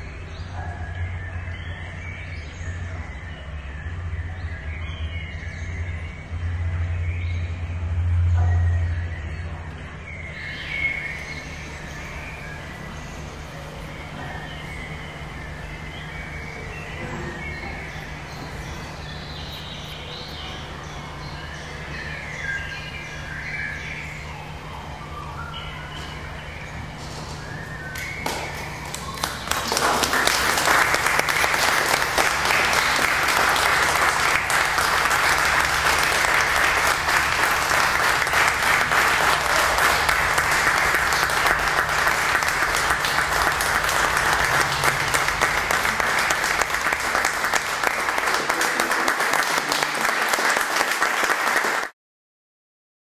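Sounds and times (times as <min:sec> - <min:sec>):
steady low hum: 0:00.0 - 0:50.3
audience applauding: 0:10.3 - 0:23.4, 0:27.3 - 0:52.0.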